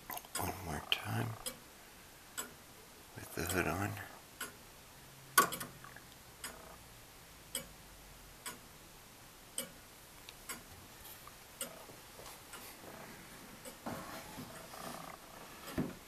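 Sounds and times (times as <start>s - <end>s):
clock ticking: 0.1s - 1.7s, 2.4s - 2.6s, 3.2s - 4.6s, 5.4s - 6.9s, 7.5s - 7.8s, 8.4s - 8.8s, 9.5s - 10.8s, 11.5s - 13.0s, 13.6s - 13.9s.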